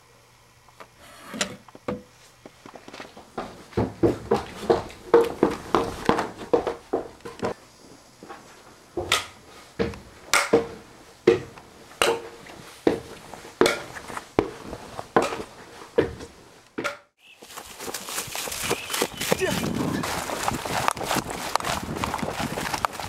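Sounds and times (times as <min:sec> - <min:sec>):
scuffs and knocks of handling: 0:12.2 - 0:16.6, 0:17.3 - 0:23.0.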